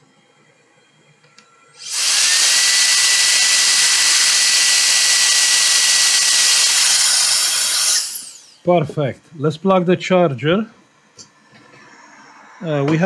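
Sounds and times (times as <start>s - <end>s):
electric air duster blowing: 1.8s - 8.6s.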